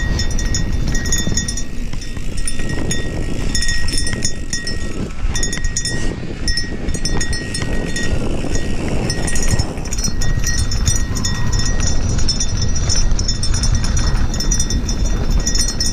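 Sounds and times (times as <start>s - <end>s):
light metallic jingling: 0.0s - 15.9s
tyres rumbling over dirt: 0.0s - 15.9s
wind buffeting microphone: 0.0s - 15.9s.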